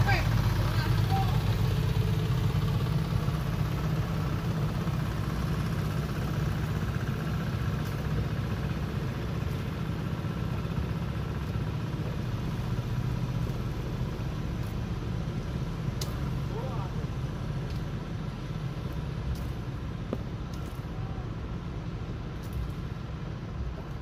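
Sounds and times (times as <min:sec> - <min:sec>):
boat engine running: 0:00.0 - 0:24.0
wind: 0:00.0 - 0:24.0.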